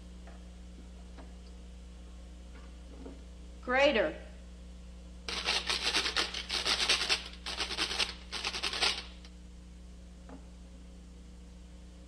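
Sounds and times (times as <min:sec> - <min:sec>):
kitchen grater rasping: 0:05.3 - 0:09.2.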